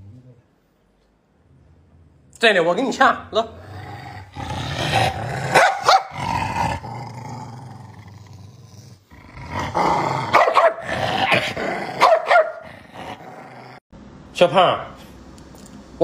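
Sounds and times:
dog growling and snarling: 3.4s - 13.8s.

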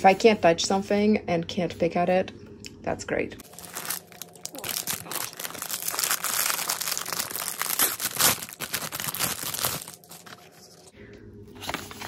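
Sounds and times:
plastic bag crinkling: 3.4s - 10.9s.

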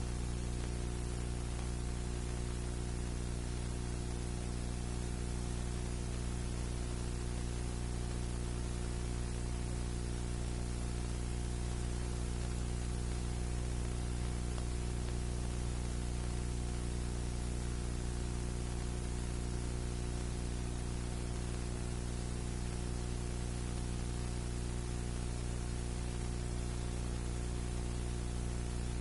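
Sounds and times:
low electrical hum: 0.0s - 29.0s
recording hiss: 0.0s - 29.0s.

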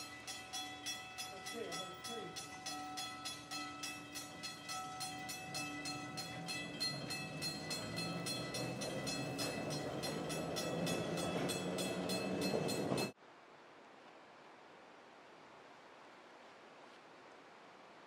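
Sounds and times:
bell ringing rapidly: 0.0s - 13.1s
streetcar wheels rolling: 0.0s - 13.2s.

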